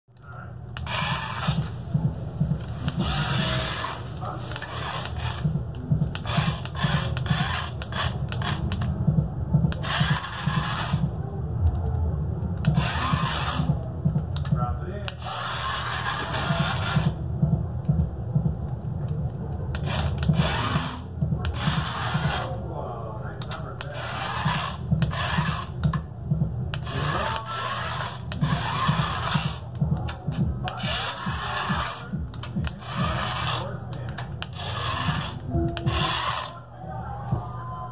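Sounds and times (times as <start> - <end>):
toy car motor whirring: 0.8 - 1.7, 2.9 - 5.5, 6.1 - 8.9, 9.7 - 11.0, 12.7 - 13.7, 15.1 - 17.1, 19.7 - 22.5, 23.4 - 25.8, 26.8 - 29.6, 30.7 - 36.6.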